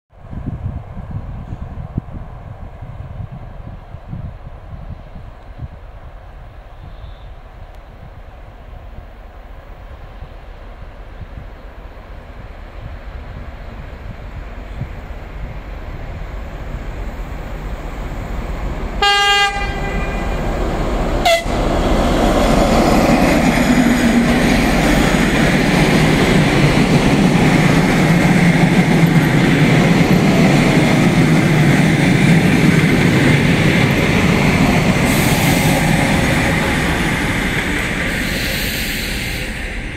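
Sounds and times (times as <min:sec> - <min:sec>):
train wheels rolling on rails: 0:00.5 - 0:39.9
locomotive horn blast: 0:19.0 - 0:21.9.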